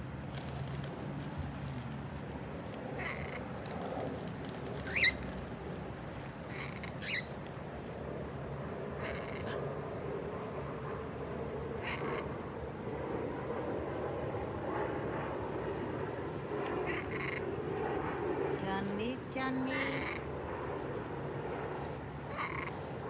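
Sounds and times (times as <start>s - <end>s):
parrot chirps: 4.8s - 5.2s, 6.5s - 7.4s.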